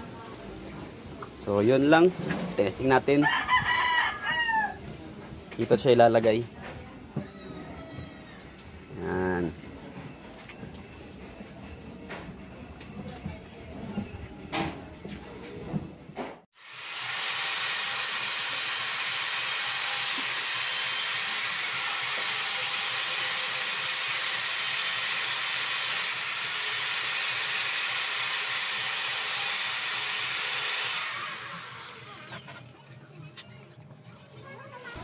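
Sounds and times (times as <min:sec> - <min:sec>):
electric drill boring into wood: 0:16.6 - 0:32.6.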